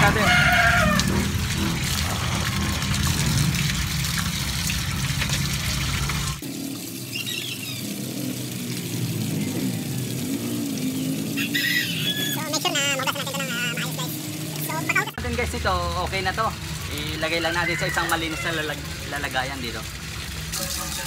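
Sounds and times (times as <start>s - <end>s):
water splashing into plastic basin: 16.1s - 21.0s.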